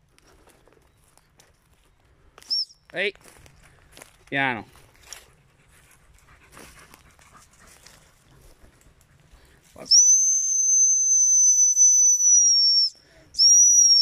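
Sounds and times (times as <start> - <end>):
high-pitched dog whistle blast: 9.9 - 14.0.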